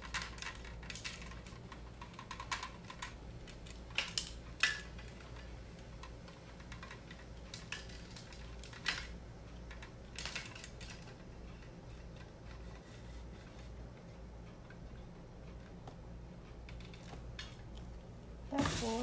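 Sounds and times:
light stand clicks and rattles: 0:00.0 - 0:13.8.

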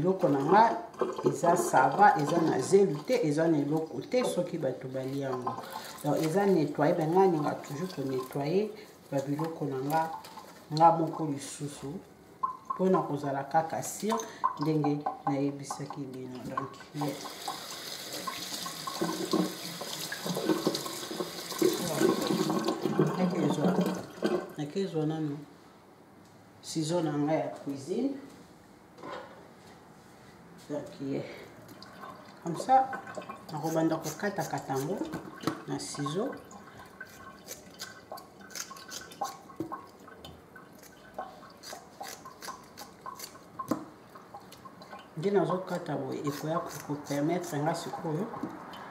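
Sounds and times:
water dripping into sink: 0:12.4 - 0:13.2, 0:14.0 - 0:23.2, 0:34.7 - 0:45.6, 0:47.7 - 0:48.9
water splashing: 0:15.6 - 0:24.6
scissors snipping wet tripe: 0:37.0 - 0:40.0, 0:40.7 - 0:44.7, 0:46.2 - 0:48.5.

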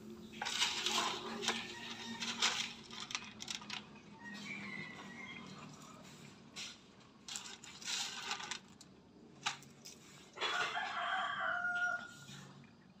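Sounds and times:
rooster crowing: 0:01.4 - 0:02.5, 0:04.2 - 0:06.2, 0:10.4 - 0:12.5.

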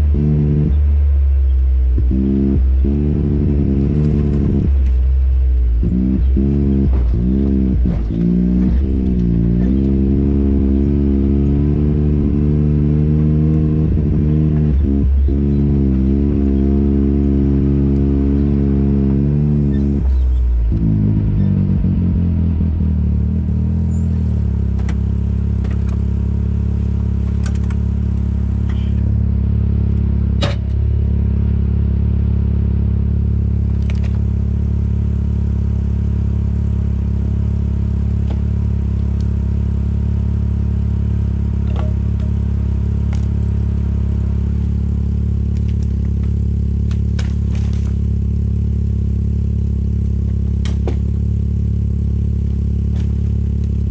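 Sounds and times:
utility vehicle engine running: 0:00.0 - 0:53.9
sharp clicks and knocks: 0:24.7 - 0:26.1, 0:27.2 - 0:29.1, 0:30.4 - 0:30.8, 0:41.6 - 0:42.4, 0:50.2 - 0:51.1.

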